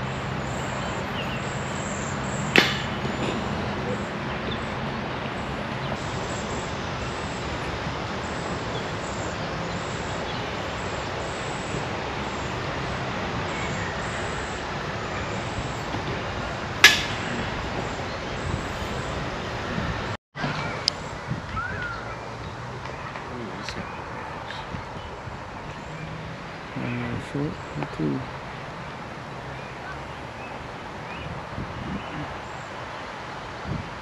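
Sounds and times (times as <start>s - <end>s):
rushing outdoor background noise: 0.0s - 34.0s
sharp knock: 2.5s - 3.4s, 16.8s - 17.2s.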